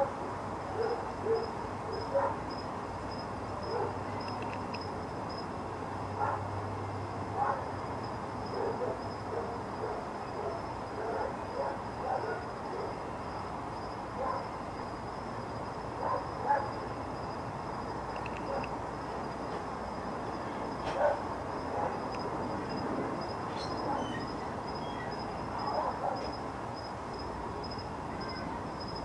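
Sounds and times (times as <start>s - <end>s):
faint high whine: 0.7s - 29.0s
distant dog barking: 0.8s - 2.4s, 3.6s - 4.0s, 6.2s - 6.5s, 7.4s - 7.7s, 8.5s - 13.0s, 14.2s - 14.5s, 16.0s - 16.8s, 20.9s - 22.1s, 23.7s - 24.2s, 25.6s - 26.4s
outdoor hiss: 11.9s - 29.0s.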